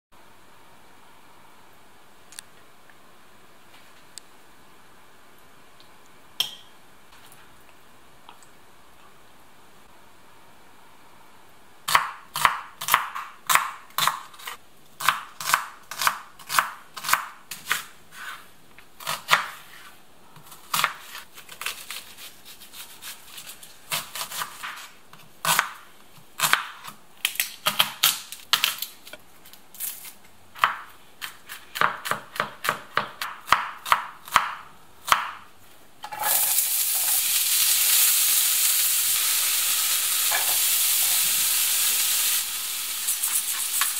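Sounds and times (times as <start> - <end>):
knife chopping on wooden board: 30.6 - 35.4
onion frying in pan: 36.0 - 43.9.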